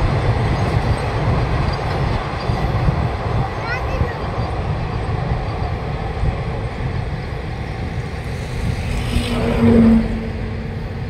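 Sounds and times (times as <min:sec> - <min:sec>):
freight train rumbling past: 0:00.0 - 0:11.0
train horn tone: 0:09.0 - 0:11.0.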